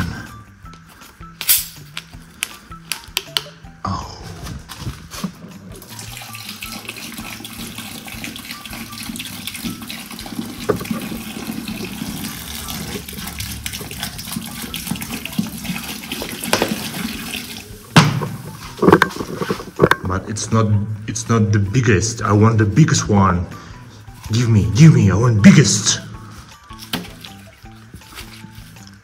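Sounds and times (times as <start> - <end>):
cola fizzing and pouring: 5.7 - 20.0.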